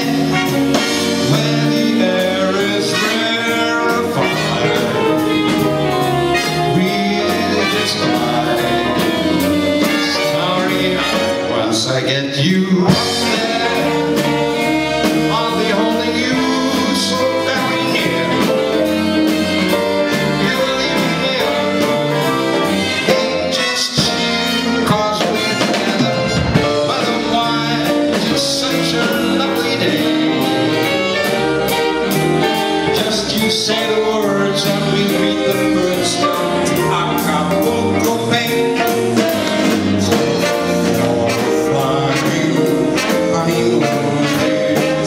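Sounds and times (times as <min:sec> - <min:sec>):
man singing into a microphone: 0:00.0 - 0:19.0, 0:20.1 - 0:22.2, 0:23.0 - 0:31.4, 0:32.8 - 0:45.0
big band playing: 0:00.0 - 0:45.0.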